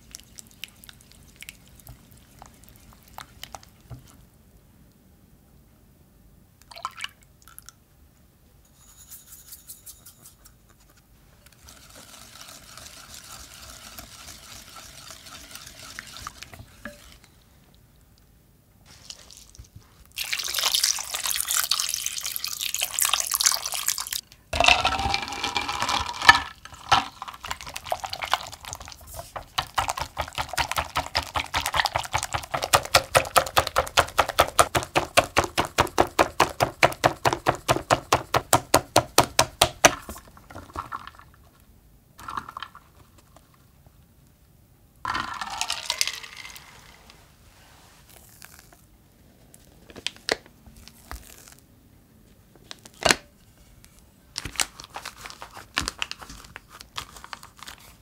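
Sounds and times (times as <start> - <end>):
wire whisk beating cream: 11.6 - 17.3, 27.6 - 38.6
water poured over ice cubes: 18.9 - 32.7, 45.1 - 47.1.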